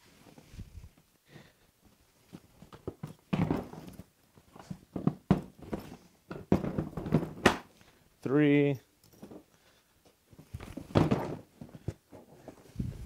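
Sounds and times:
plastic cases knocking and clunking: 2.6 - 4.0, 4.6 - 7.7, 10.6 - 12.6.

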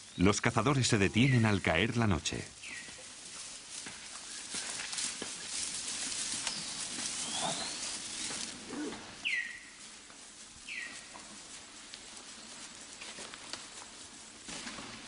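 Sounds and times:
steady high hiss: 0.0 - 15.0
clicks and rustles: 2.8 - 9.0, 9.9 - 15.0
bird giving falling calls: 6.4 - 9.8.

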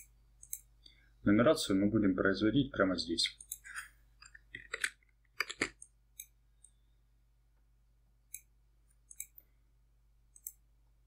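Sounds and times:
mouse and keyboard clicks: 3.4 - 6.4, 9.1 - 9.4.

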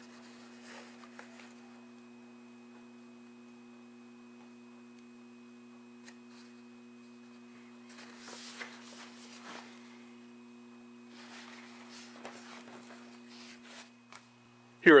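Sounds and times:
paper pages rustling: 0.0 - 1.8, 6.0 - 10.1, 11.1 - 14.4.

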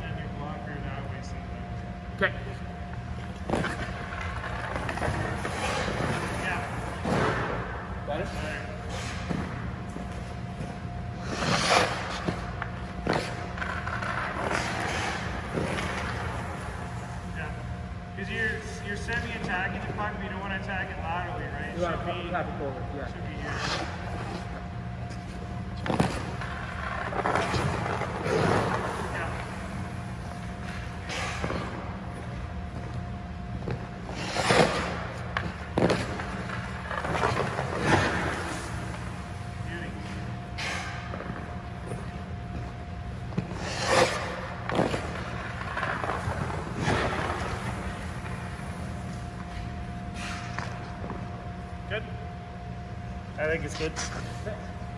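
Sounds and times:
steady low hum: 0.0 - 54.9
skate blades scraping ice: 3.3 - 17.6, 23.4 - 32.8, 33.7 - 42.6, 43.2 - 51.0.

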